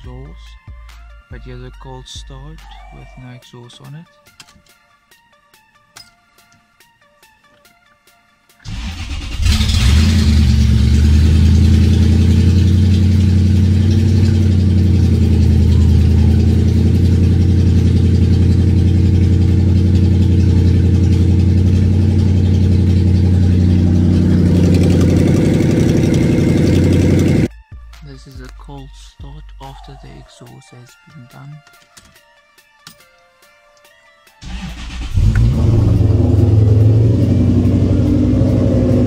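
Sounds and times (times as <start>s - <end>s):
car engine starting: 8.6s - 27.5s, 34.4s - 39.0s
loud engine idling: 8.7s - 27.5s, 34.4s - 39.0s.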